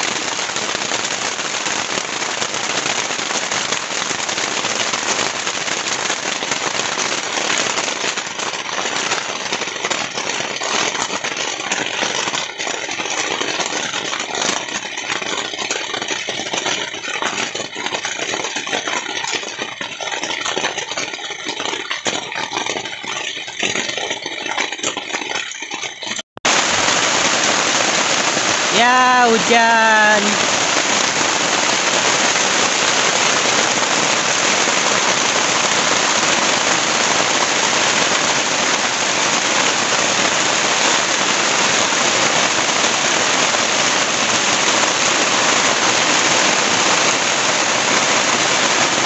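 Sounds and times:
heavy rain falling: 0.0 - 15.5, 26.4 - 49.0.

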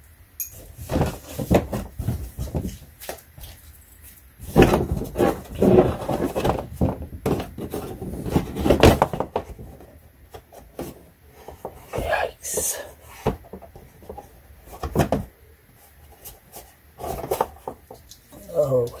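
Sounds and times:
plastic knocks and scrapes: 0.8 - 3.5, 4.4 - 12.1, 13.2 - 15.3, 16.2 - 18.1.

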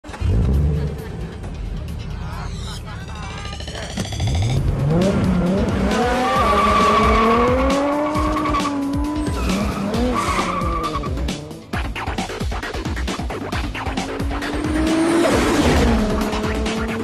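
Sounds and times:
background music: 0.0 - 17.0
car engine revving: 0.0 - 17.0.

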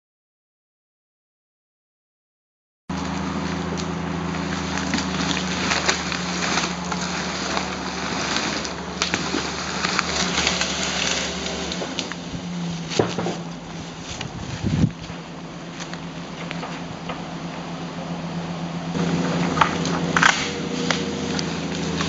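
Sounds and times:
fire engine engine running: 2.9 - 22.0.

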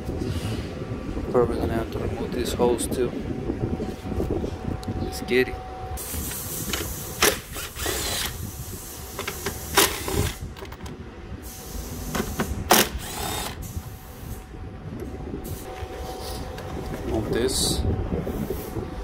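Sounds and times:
small power tool running: 6.0 - 8.5, 12.7 - 13.7.

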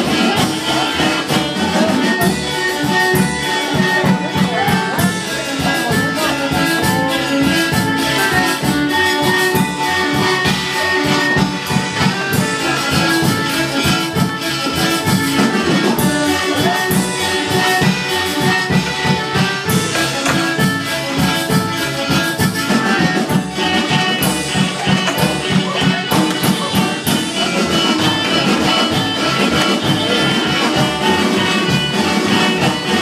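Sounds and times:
loud dance music: 18.4 - 33.0.

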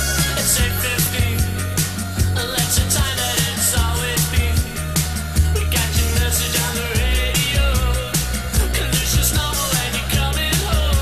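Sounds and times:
background music with drums: 0.0 - 11.0.

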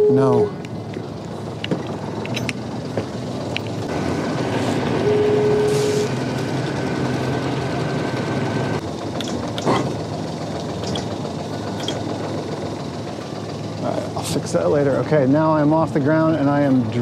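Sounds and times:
short steady tone: 0.0 - 0.6, 5.0 - 6.2
boat engine running: 0.0 - 17.0.

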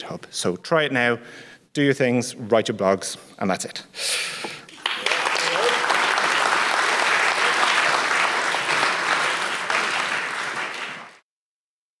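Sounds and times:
audience applauding: 4.7 - 11.2.

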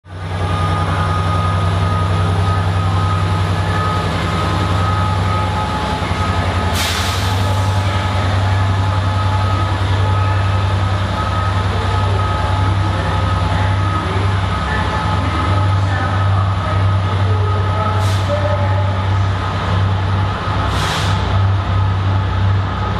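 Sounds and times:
diesel locomotive engine hum: 0.0 - 22.9
short sharp hiss: 20.7 - 21.2.

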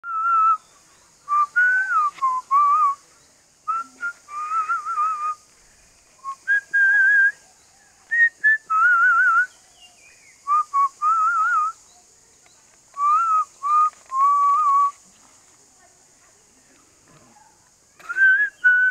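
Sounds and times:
person whistling: 1.3 - 3.0, 3.7 - 5.4, 6.2 - 7.4, 13.0 - 15.0, 18.1 - 18.9.

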